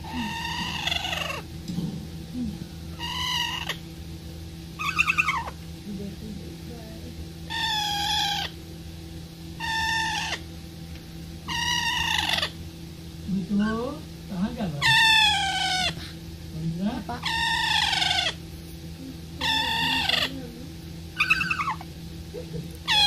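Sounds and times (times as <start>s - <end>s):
parakeet calling: 0.0s - 1.5s, 2.9s - 3.9s, 4.8s - 5.6s, 7.5s - 8.6s, 9.6s - 10.5s, 11.4s - 12.6s, 14.7s - 16.0s, 17.0s - 18.5s, 19.4s - 21.9s
steady low hum: 0.0s - 23.0s.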